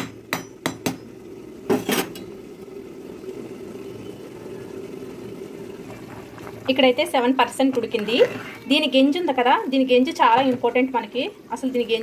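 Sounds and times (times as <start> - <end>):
pot of rice boiling: 0.0 - 12.0
spoon scraping pot: 7.7 - 8.8.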